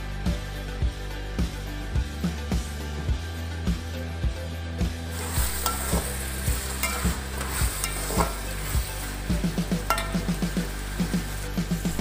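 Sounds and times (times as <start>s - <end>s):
vegetables sizzling in oil: 5.1s - 12.0s
spatula scraping pan: 5.2s - 11.4s.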